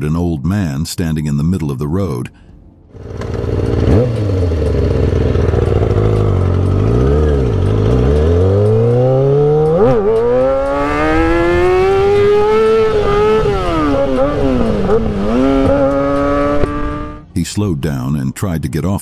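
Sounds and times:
motorcycle engine revving: 2.9s - 17.3s.

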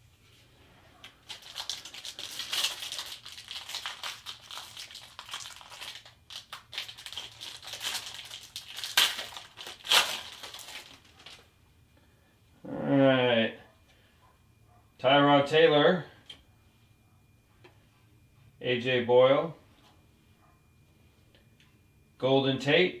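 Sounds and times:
plastic wrapper crinkling: 1.0s - 11.5s.

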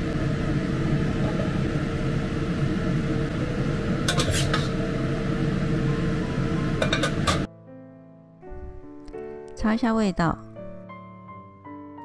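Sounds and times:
mechanical hum: 0.0s - 7.5s
metal spatula scraping a plate: 4.1s - 4.8s.

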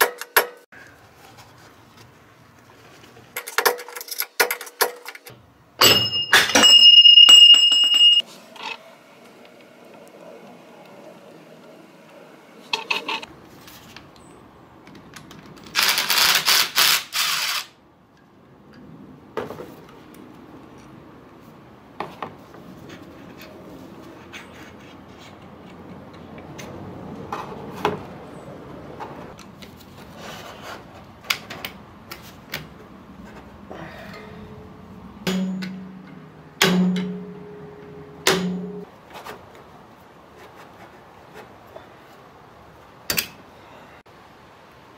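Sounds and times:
metal tools clinking: 3.4s - 8.8s.

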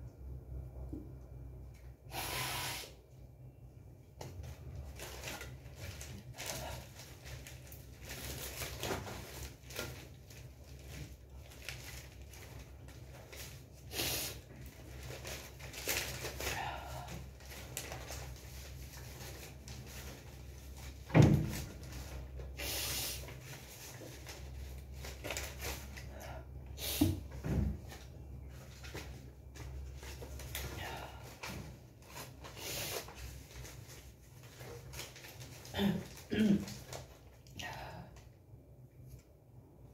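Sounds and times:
paper bundles thumping down: 14.8s - 22.6s.

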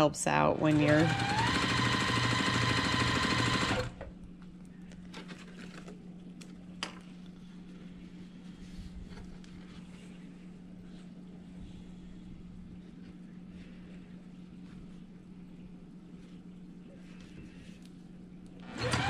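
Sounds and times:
sewing machine stitching: 0.5s - 4.0s, 18.6s - 19.0s
low steady hum: 2.8s - 18.9s.

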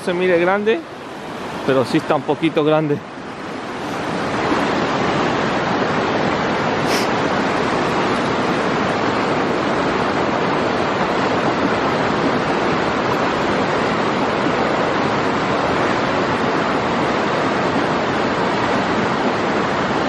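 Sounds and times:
river rapids rushing over rocks: 0.0s - 20.0s.

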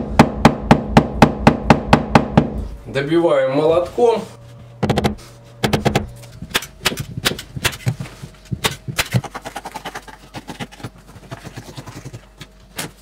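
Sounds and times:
hammer tapping staples: 4.8s - 9.4s.

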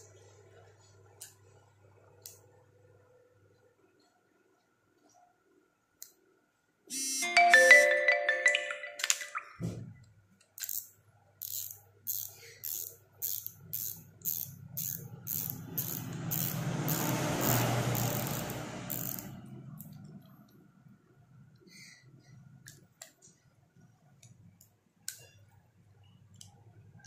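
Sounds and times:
spinning reel clicking: 10.6s - 19.9s
gears whirring: 10.6s - 20.0s.

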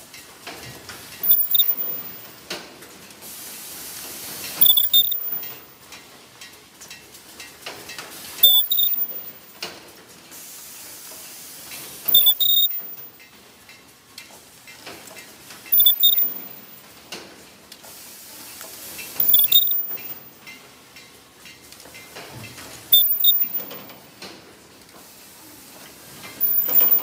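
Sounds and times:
machine burst with beep and hiss: 1.2s - 2.4s, 4.5s - 5.7s, 8.4s - 9.5s, 12.0s - 13.2s, 15.7s - 16.9s, 19.2s - 20.4s, 22.9s - 24.0s, 26.4s - 27.0s
steady machine noise: 1.2s - 2.4s, 4.6s - 5.6s, 15.7s - 16.8s, 19.2s - 20.3s, 22.9s - 23.9s, 26.4s - 27.0s.

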